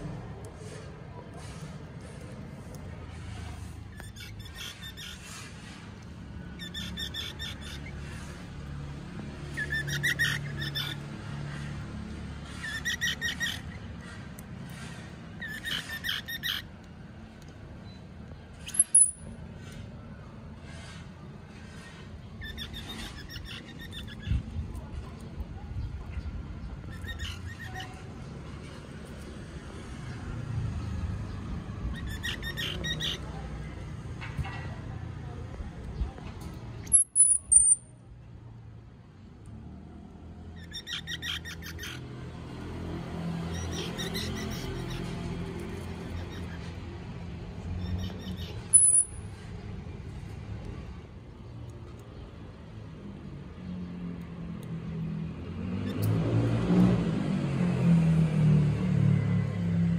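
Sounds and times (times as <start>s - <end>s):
distant road traffic rumble: 0.0s - 59.9s
high-pitched squeak: 12.4s - 16.7s, 17.8s - 20.0s, 36.8s - 38.0s, 43.6s - 49.6s
short high chirps: 18.7s - 19.3s, 36.9s - 37.9s, 48.7s - 49.3s.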